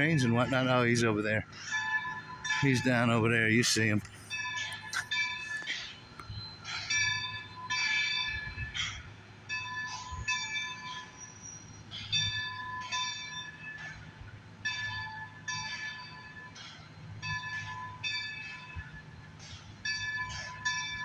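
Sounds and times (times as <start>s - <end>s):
locomotive bell ringing: 0.0s - 21.0s
low train rumble: 0.0s - 21.0s.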